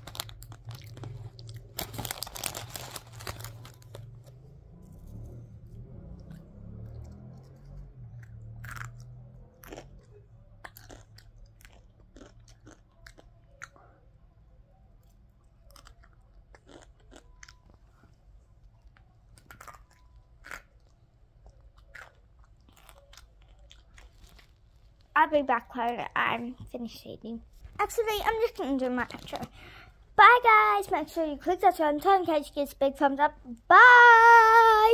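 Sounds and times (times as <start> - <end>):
person chewing crunchy snack: 0.0 - 4.2, 6.0 - 13.8, 15.5 - 17.8, 19.3 - 25.0.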